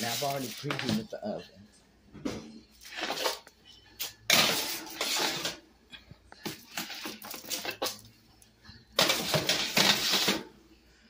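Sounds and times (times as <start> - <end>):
baking sheet scraping: 0.0 - 1.1, 4.1 - 5.6, 9.0 - 10.5.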